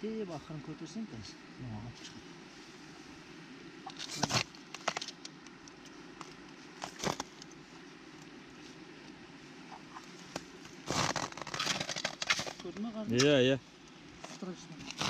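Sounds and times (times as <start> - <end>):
ice cracking: 10.3 - 13.4
slush ice crunching and crackling: 10.8 - 12.6.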